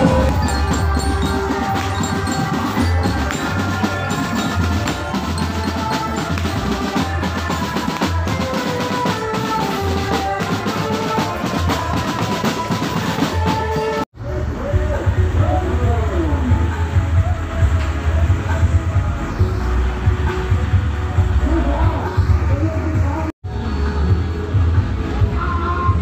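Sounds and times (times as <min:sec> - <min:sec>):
glockenspiel melody: 0:00.0 - 0:07.8
snare and bass drums: 0:00.0 - 0:14.0.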